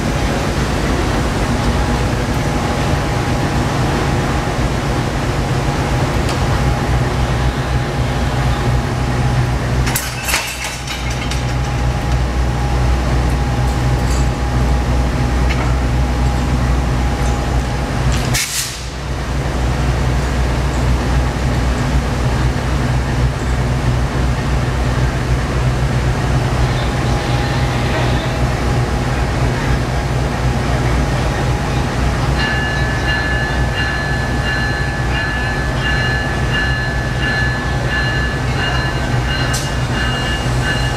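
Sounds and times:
diesel locomotive idling: 0.0s - 40.9s.

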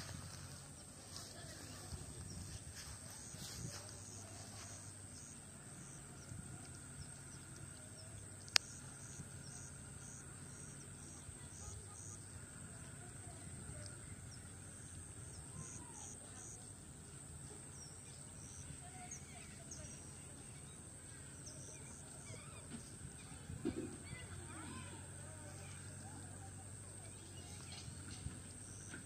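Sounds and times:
insects: 0.0s - 29.0s.

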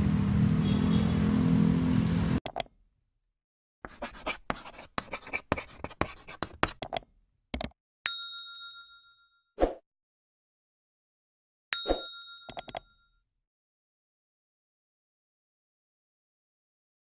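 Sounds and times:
pen scratching writing: 3.8s - 7.0s.

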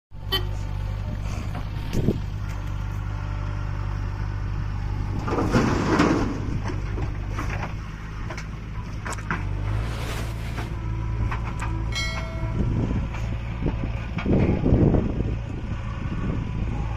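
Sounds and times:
diesel engine running: 0.1s - 16.9s
soil pouring into trailer: 9.4s - 10.9s.

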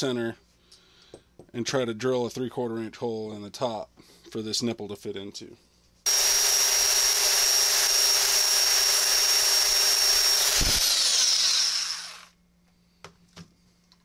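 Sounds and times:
belt sander grinding metal: 6.1s - 12.3s.

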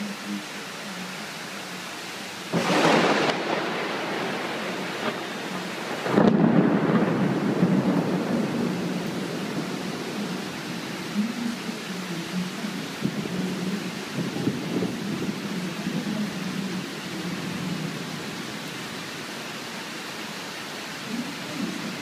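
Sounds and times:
heavy rain hissing: 0.0s - 22.0s
thunder crack: 2.5s - 10.5s
rumbling thunder peal: 2.5s - 11.1s.

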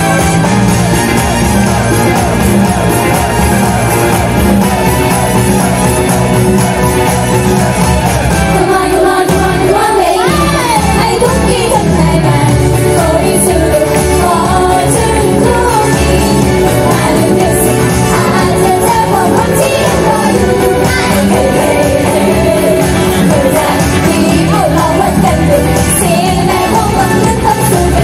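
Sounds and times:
pop song: 0.0s - 28.0s
female group singing: 8.5s - 28.0s.

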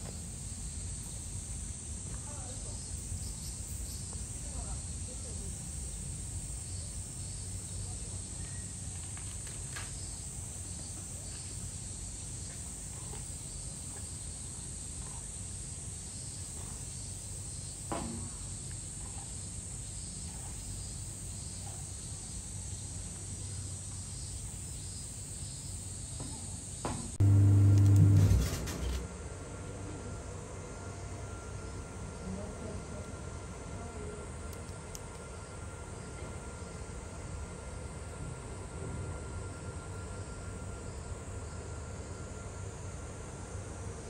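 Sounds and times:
high-pitched insect chorus: 0.0s - 27.1s, 30.9s - 44.0s
low outdoor rumble: 27.1s - 41.3s
loud low hum: 27.2s - 32.5s
faint click: 34.5s - 35.2s.

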